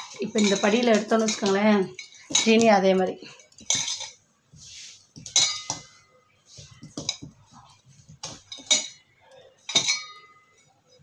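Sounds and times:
metal tumbler clinking on bowl: 0.0 - 4.2, 5.2 - 6.0, 8.3 - 10.7
metallic ring: 9.7 - 10.7.

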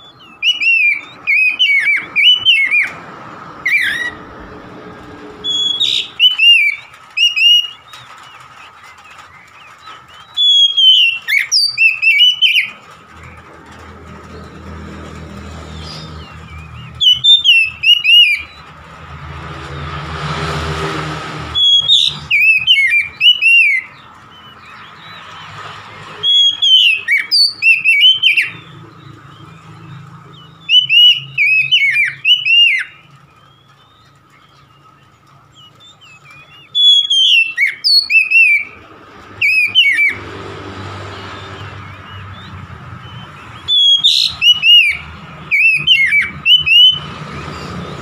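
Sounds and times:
bird singing whistled phrases: 0.0 - 3.0, 5.4 - 7.9, 10.1 - 12.8, 15.8 - 18.6, 21.6 - 24.0, 26.2 - 28.8, 29.8 - 34.9, 35.6 - 38.8, 39.4 - 40.2, 41.4 - 47.7
rushing noise: 17.7 - 23.2.

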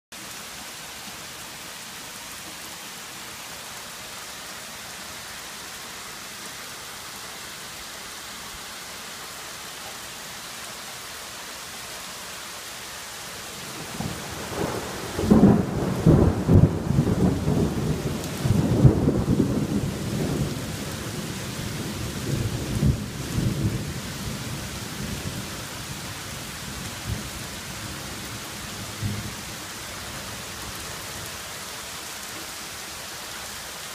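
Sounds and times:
heavy rain falling: 0.1 - 33.9
thunder rumbling: 13.6 - 24.6.

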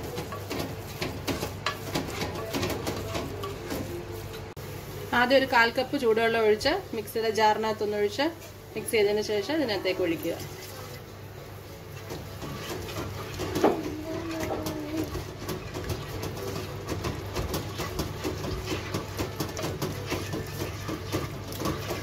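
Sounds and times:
spatula stirring thick gravy: 0.0 - 3.9, 11.6 - 22.0.

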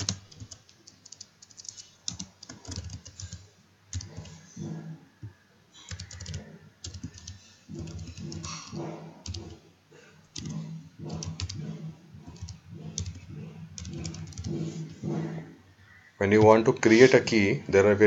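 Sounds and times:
typing on computer keyboard: 0.0 - 4.4, 5.9 - 9.6, 10.3 - 11.7, 12.3 - 15.0.

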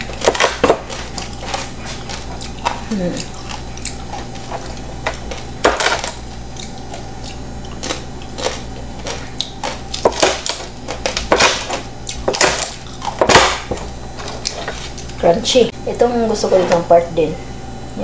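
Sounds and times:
knife crunching roast skin: 0.0 - 15.2.

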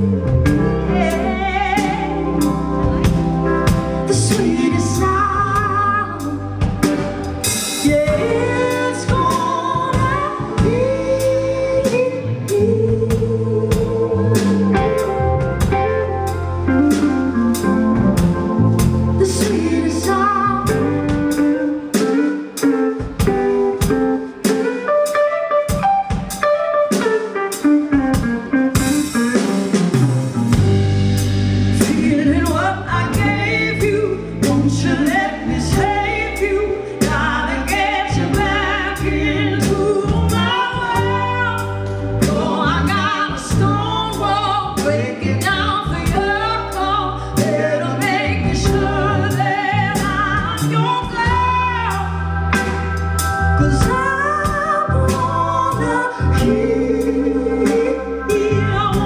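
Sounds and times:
woman singing: 0.0 - 15.7, 18.8 - 24.8, 31.7 - 52.2, 53.6 - 59.0
band playing: 0.0 - 59.0.

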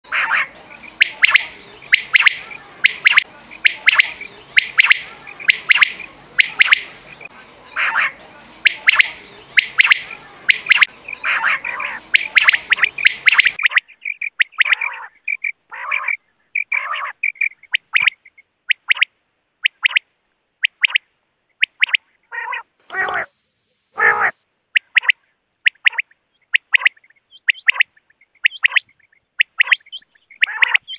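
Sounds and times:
quail calling: 0.0 - 20.0, 21.6 - 23.3, 24.0 - 30.9
steady background hiss: 22.6 - 24.7.

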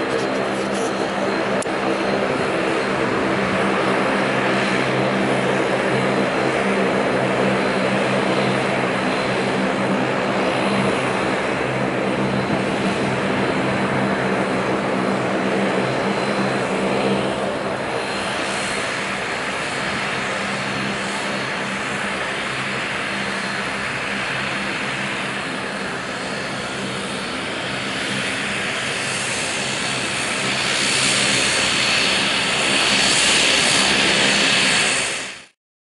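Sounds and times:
high turbine whine: 0.0 - 35.6
propeller drone: 0.0 - 35.6.

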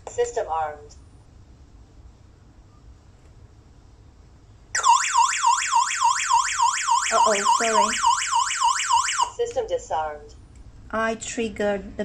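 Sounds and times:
electronic alarm siren wailing: 4.8 - 9.4.

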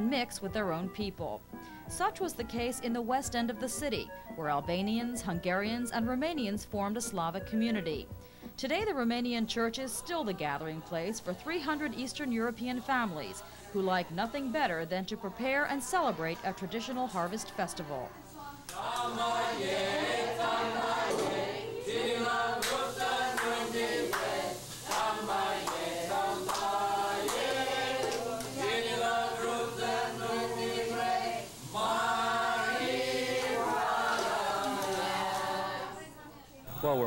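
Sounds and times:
group of voices singing: 9.6 - 36.3.

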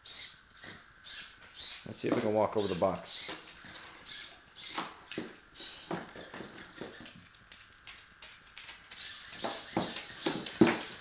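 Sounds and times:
robot legs tapping on tiles: 3.1 - 11.0
servo motors whirring: 8.9 - 11.0.

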